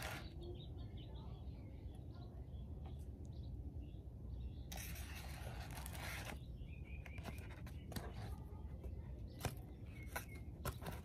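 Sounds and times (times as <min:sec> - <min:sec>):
faint bird chirps: 0:00.0 - 0:11.0
scraping and rustling handling: 0:04.7 - 0:11.0.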